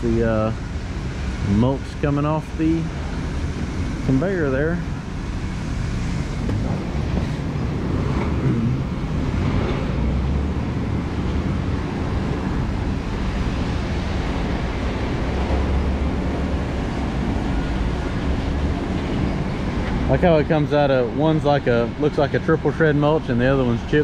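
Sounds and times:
heavy machinery engine rumble: 0.0 - 24.0
noisy hiss: 0.0 - 24.0.

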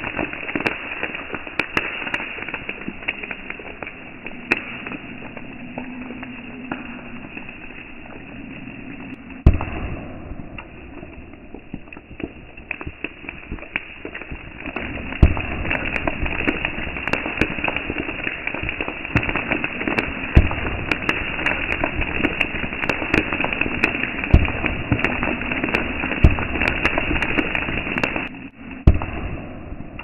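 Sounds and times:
rapid crackling pops: 0.0 - 30.0
loud bangs: 9.4 - 11.6.

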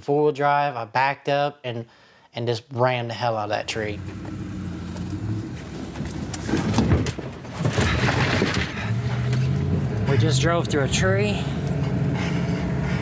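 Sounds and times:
truck engine running: 3.8 - 7.3, 8.1 - 13.0
wood cracking and crunching: 5.5 - 9.4.

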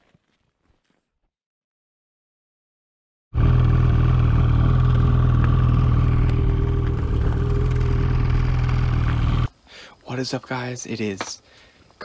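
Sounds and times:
atv engine running: 3.4 - 9.5.

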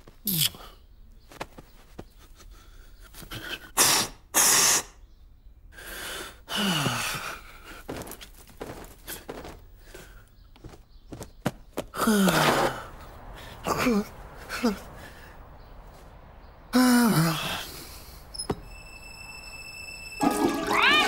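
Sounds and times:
man's sharp breaths and puffs: 1.5 - 5.0, 17.4 - 18.3.

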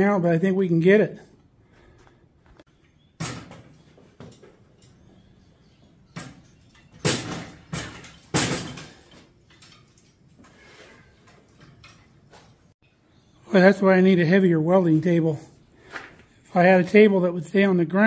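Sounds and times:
metal clunks and knocks: 6.1 - 10.1.

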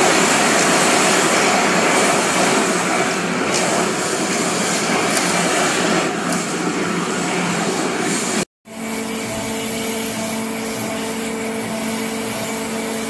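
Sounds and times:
machine rushing hiss: 7.2 - 13.0.

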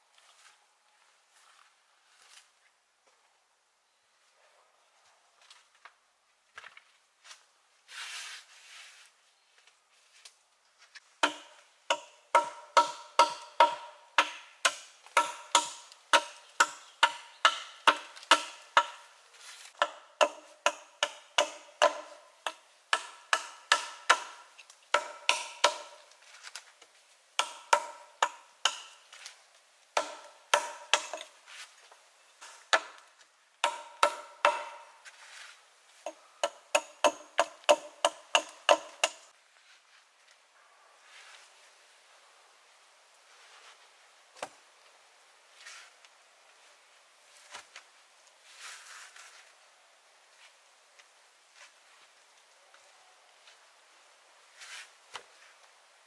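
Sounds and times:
hatchet chopping into log: 11.2 - 19.0, 19.8 - 26.0, 27.4 - 29.0, 30.0 - 31.3, 33.6 - 34.9, 36.1 - 39.2.

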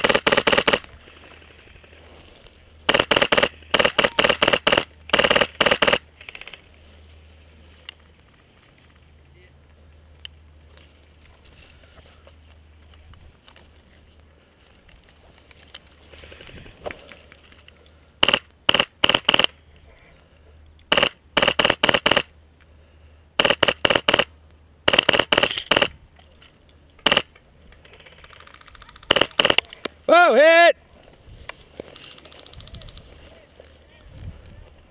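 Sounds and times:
airsoft rifle firing bursts: 0.0 - 0.9, 2.9 - 6.5, 18.2 - 19.6, 20.9 - 22.3, 23.4 - 24.3, 24.9 - 25.9, 27.0 - 27.3, 28.0 - 29.7.

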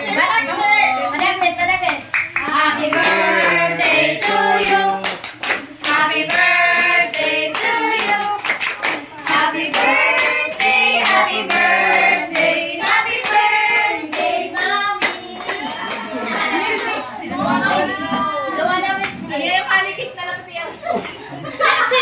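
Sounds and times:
group of people singing: 2.4 - 18.2
hand clapping: 5.0 - 17.0.

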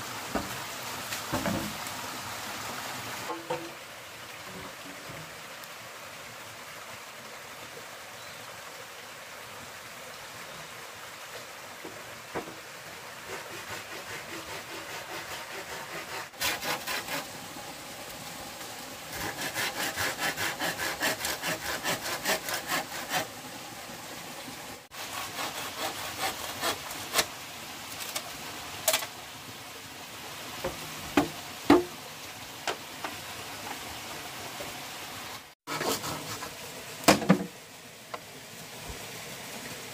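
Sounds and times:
hand saw cutting bamboo: 13.2 - 17.4, 19.1 - 23.4, 24.9 - 27.3, 35.7 - 36.6.

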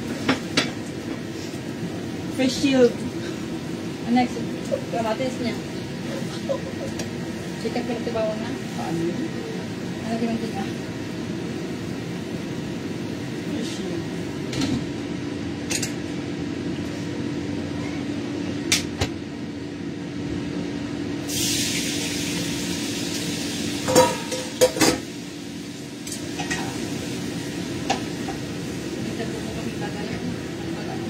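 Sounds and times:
food sizzling: 0.0 - 14.6, 21.2 - 31.0
lid and utensils clanking on pan: 23.9 - 25.0.

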